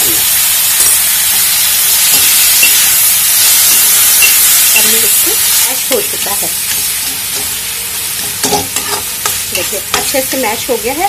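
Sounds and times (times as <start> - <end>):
vegetables sizzling in oil: 0.0 - 11.0
spatula scraping pan: 8.2 - 10.2.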